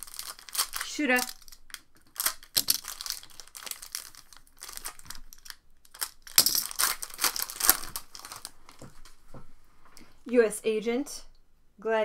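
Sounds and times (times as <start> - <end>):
foil pack crinkling and tearing: 0.0 - 8.8.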